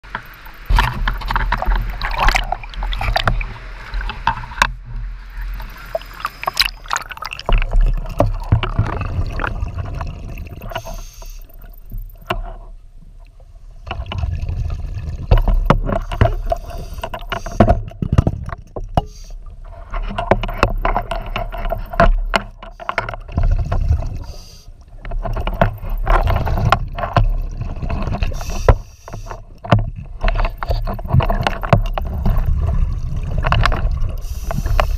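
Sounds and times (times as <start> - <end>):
exhaled bubbles underwater: 0.3 - 12.2, 13.9 - 15.9, 30.5 - 34.9.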